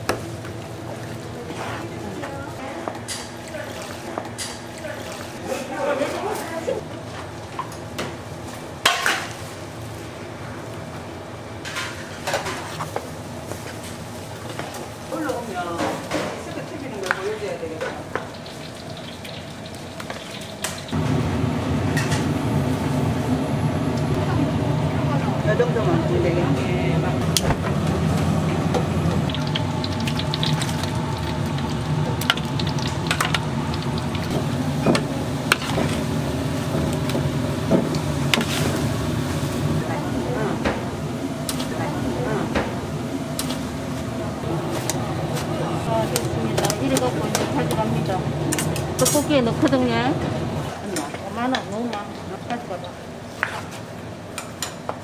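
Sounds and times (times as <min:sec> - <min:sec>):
low machine hum: 0:00.0 - 0:53.3
utensils clattering on metal pots: 0:45.8 - 0:50.0.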